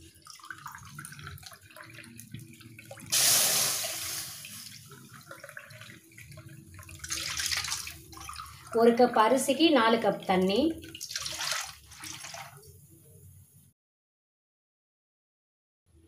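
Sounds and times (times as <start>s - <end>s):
water pouring into metal pan: 0.0s - 9.0s, 10.8s - 12.8s.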